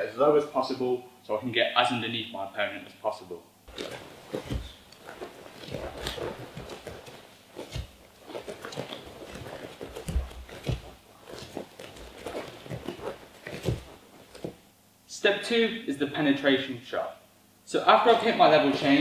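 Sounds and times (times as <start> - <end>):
dull thuds on mats: 3.7 - 14.6
footsteps on gym mats: 3.7 - 14.7.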